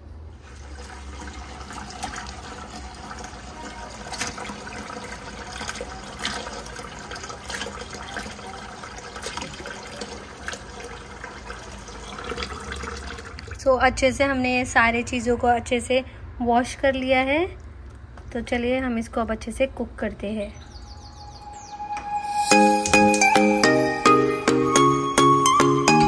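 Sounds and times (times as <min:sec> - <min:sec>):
tap water splashing in sink: 0:00.5 - 0:13.7.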